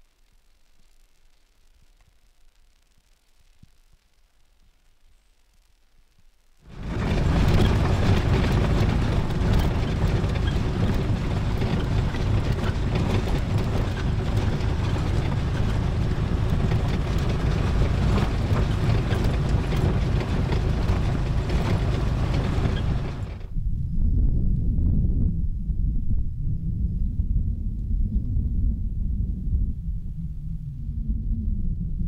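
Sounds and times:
vehicle rumbling and rattling: 6.7s - 23.8s.

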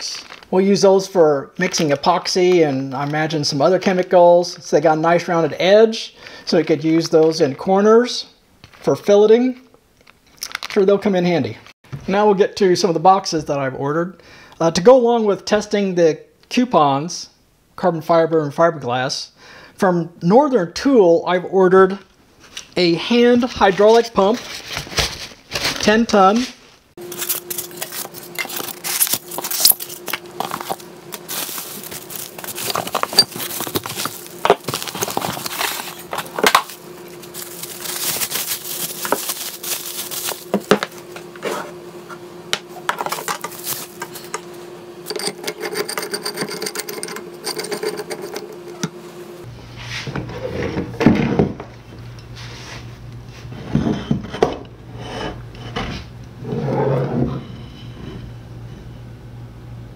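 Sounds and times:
cardboard and foam rustling: 23.6s - 41.7s, 43.0s - 44.4s.

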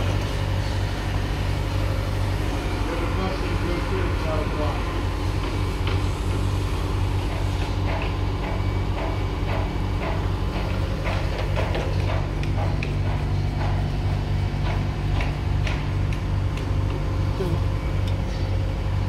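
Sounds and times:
machinery humming: 0.0s - 19.0s
metal clicks and knocks: 7.3s - 17.0s.

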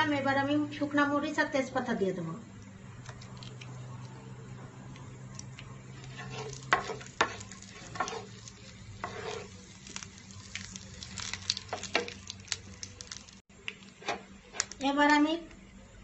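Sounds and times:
spices sizzling in hot oil: 3.0s - 15.5s
wooden spatula scraping pan: 6.0s - 8.4s, 9.0s - 9.6s.

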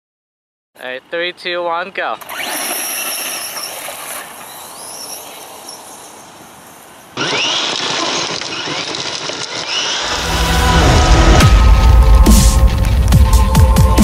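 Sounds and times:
tyres churning dirt and gravel: 1.6s - 13.7s
rc truck motor whine: 2.2s - 10.5s.

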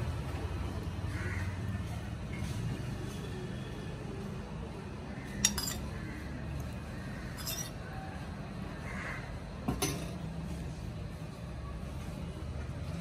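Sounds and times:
metal spoon clinking on plate: 5.4s - 5.9s, 7.4s - 7.8s.

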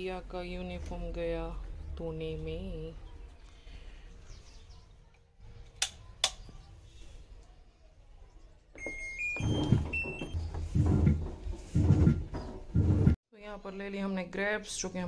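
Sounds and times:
washing machine electronic beeps: 8.7s - 11.2s
washing machine rumble: 8.8s - 13.2s.

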